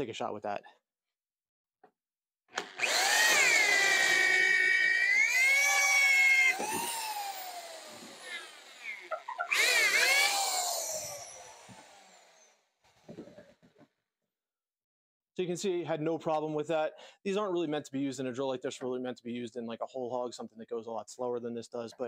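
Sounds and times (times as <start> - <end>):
power drill boring into wood: 2.5 - 12.6.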